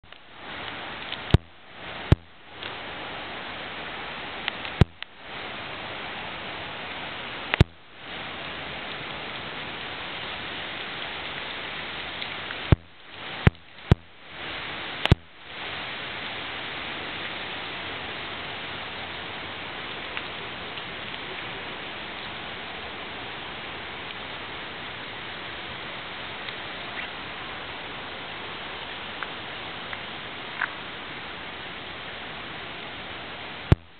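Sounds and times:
strong wind through trees: 0.0s - 33.9s
sharp clicks: 1.0s - 2.7s, 4.4s - 5.1s, 7.5s - 7.8s, 12.7s - 14.2s, 15.0s - 15.4s.

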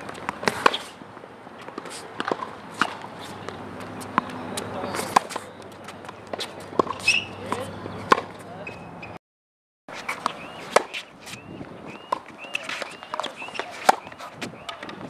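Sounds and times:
tennis balls hit by rackets: 0.0s - 8.8s, 9.9s - 15.0s
shoes chirping on court: 1.6s - 9.2s, 9.9s - 15.0s.

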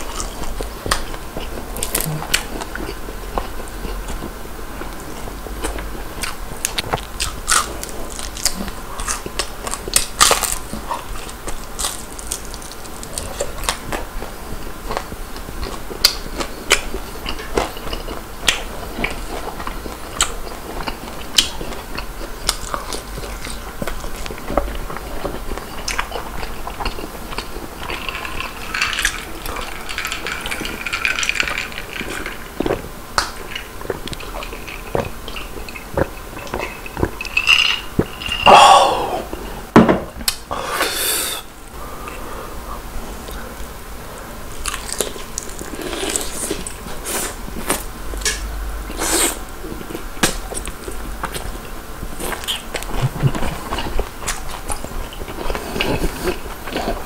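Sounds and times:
chewing and crunching: 0.0s - 38.5s, 44.5s - 57.0s
sigh-like exhale: 40.5s - 42.6s.

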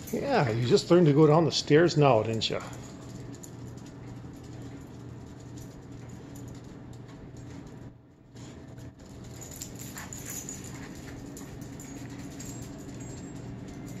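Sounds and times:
steady low hum: 0.0s - 14.0s
dog claws clicking on concrete: 2.3s - 7.8s, 8.4s - 14.0s.

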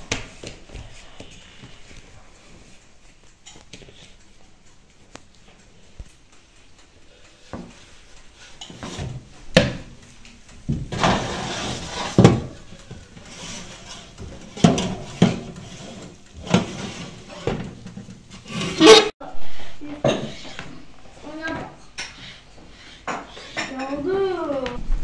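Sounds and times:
metal baking trays clattering: 8.4s - 10.0s, 10.6s - 19.1s.

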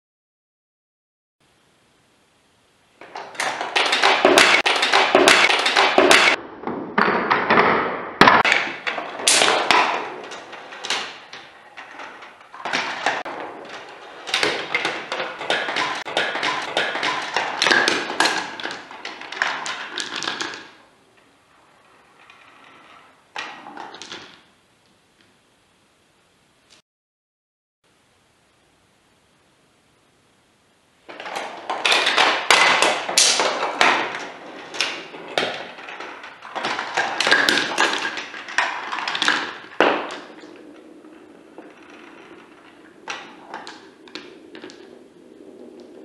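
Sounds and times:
marbles rolling through plastic run: 3.0s - 6.4s, 8.4s - 20.8s, 31.1s - 46.0s
marbles clicking and knocking: 3.0s - 21.3s, 31.1s - 46.0s.

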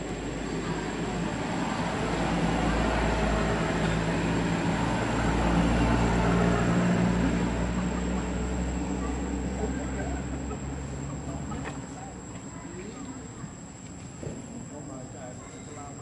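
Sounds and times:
vehicle engine passing by: 0.0s - 12.3s.

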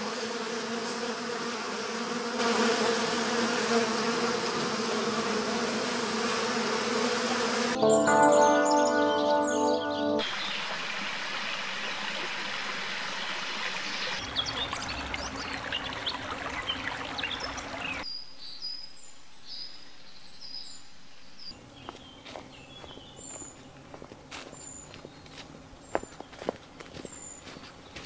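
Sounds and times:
stream babbling over stones: 10.6s - 18.0s
footsteps on leafy dirt path: 21.8s - 28.0s.

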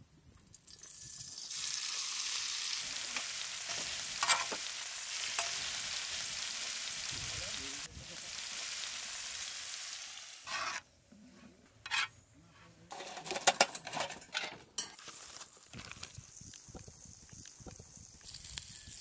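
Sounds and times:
bacon and onion sizzling on griddle: 0.2s - 10.8s, 14.8s - 19.0s
metal spoon stirring in pan: 3.2s - 5.8s, 10.4s - 10.8s, 11.8s - 12.1s
spoon scraping and knocking griddle: 3.7s - 4.7s, 10.5s - 10.8s, 11.8s - 15.2s.

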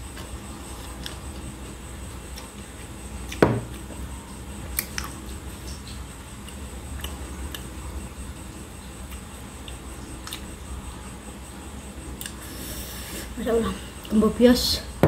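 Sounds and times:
chewing: 9.1s - 10.5s.

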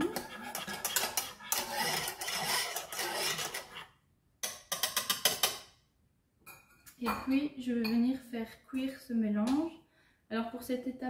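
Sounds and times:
wire whisk scraping saucepan: 0.0s - 3.9s.

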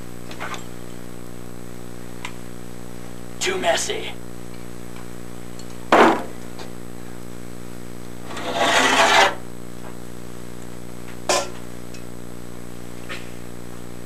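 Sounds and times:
steady low hum: 0.0s - 14.0s
scraping on a workbench: 8.3s - 9.4s.

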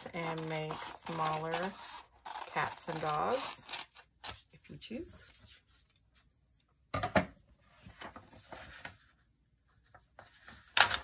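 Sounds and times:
paper rustling and crinkling: 7.6s - 11.0s.

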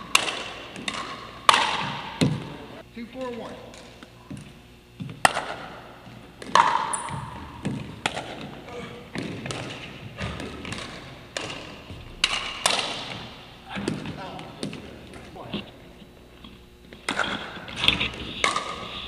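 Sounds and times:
paddles hitting plastic ball: 0.0s - 2.4s, 6.4s - 11.8s
ball bouncing on wooden floor: 9.2s - 15.3s.

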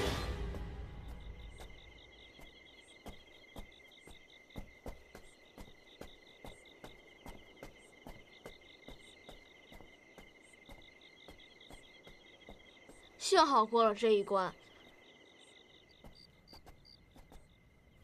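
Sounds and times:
crickets chirping: 0.1s - 18.0s
footsteps on stone paving: 0.2s - 13.3s.

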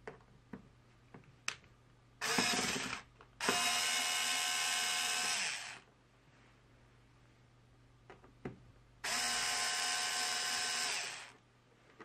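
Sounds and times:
electric screwdriver motor whine: 2.2s - 5.8s, 9.1s - 11.4s.

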